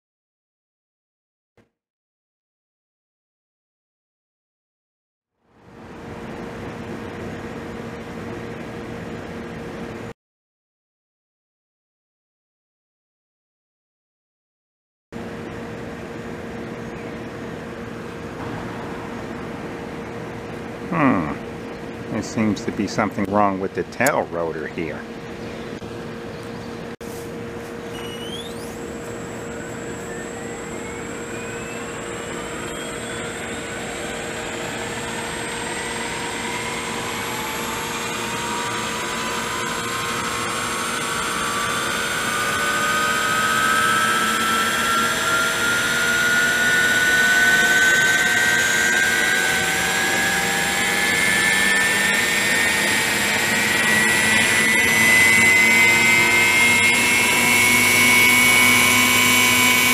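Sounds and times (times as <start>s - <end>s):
model helicopter whine: 15.2s - 59.9s.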